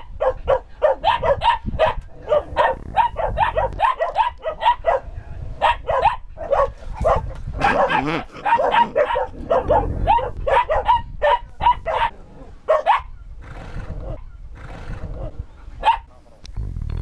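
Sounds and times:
puppy yapping: 0.2s - 5.0s, 5.6s - 12.1s, 12.7s - 13.1s
breathy sounds: 16.5s - 17.0s.

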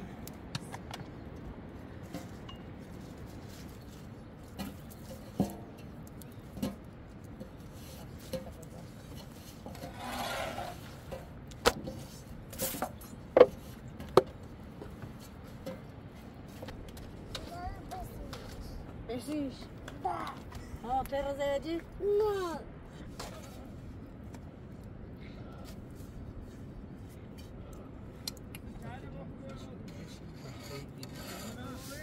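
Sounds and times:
rubbing rustle: 7.6s - 11.2s.

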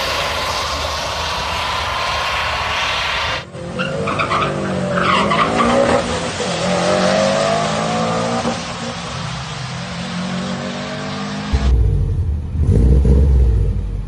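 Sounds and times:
truck engine accelerating hard: 5.6s - 14.0s.

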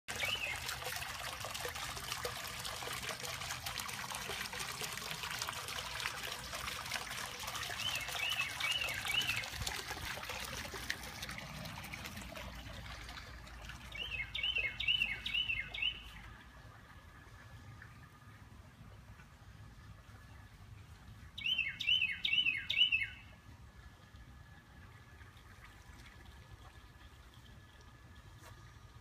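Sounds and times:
songbird singing: 0.1s - 0.7s, 7.6s - 9.6s, 13.4s - 16.5s, 21.3s - 23.4s
fountain splashing into water: 0.1s - 16.2s.

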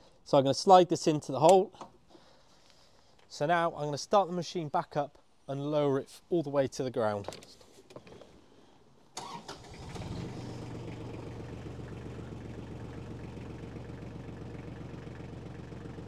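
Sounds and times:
diesel engine cranking: 9.2s - 16.0s
diesel engine idling: 9.7s - 16.0s.

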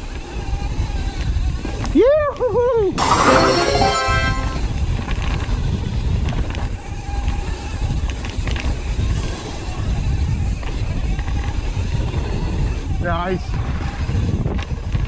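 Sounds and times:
wind and tyre rumble: 0.0s - 2.0s, 5.2s - 15.0s.

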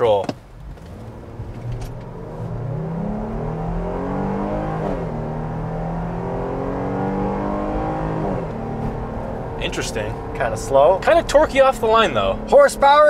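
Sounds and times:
car engine accelerating: 0.6s - 13.0s.

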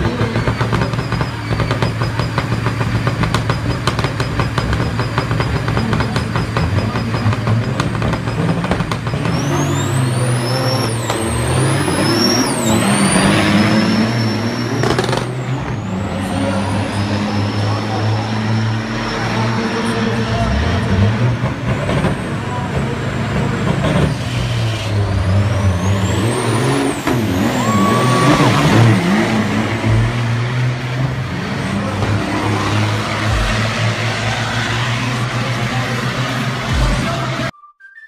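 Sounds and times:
diesel truck engines accelerating: 0.0s - 37.5s
turbo whistle: 25.8s - 29.1s, 37.5s - 38.0s.

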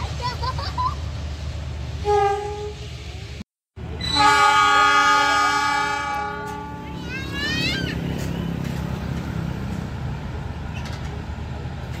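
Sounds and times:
locomotive horn blasts: 2.0s - 2.9s, 4.0s - 7.0s.

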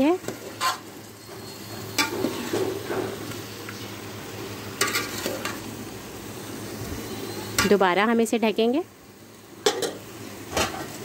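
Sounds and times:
vegetables sizzling in oil: 0.0s - 11.0s
metal spoon stirring in a pot: 0.2s - 0.9s, 4.8s - 5.6s
spoon scraping a pot: 0.3s - 0.8s.

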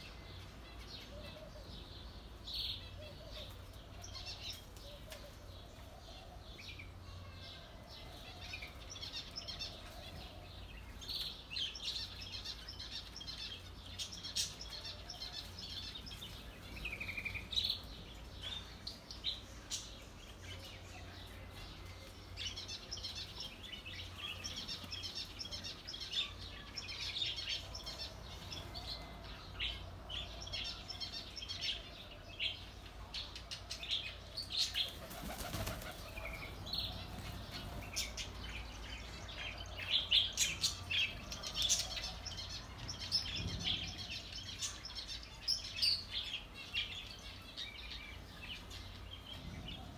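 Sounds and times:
small birds chirping and twittering: 0.0s - 49.9s
wings flapping: 34.9s - 36.2s.

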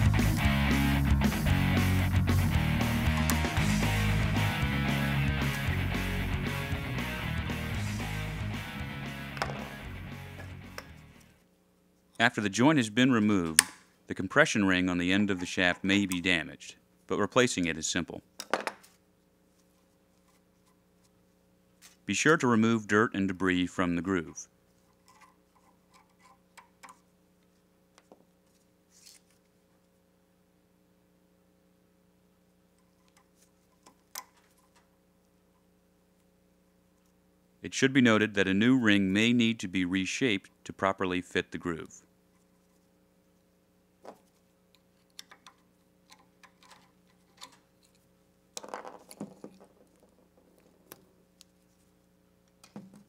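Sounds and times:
faint steady hum: 0.0s - 53.0s
metal clicks and handling noises: 44.7s - 48.1s.

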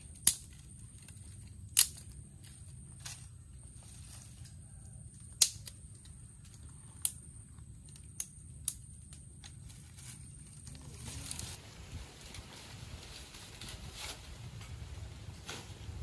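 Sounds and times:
low steady rumble: 0.0s - 16.0s
fire crackling and popping: 5.2s - 9.7s.

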